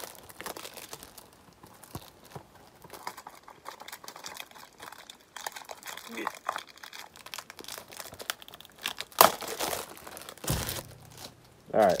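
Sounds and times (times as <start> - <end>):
plastic wrap crinkling and tearing: 0.0 - 12.0.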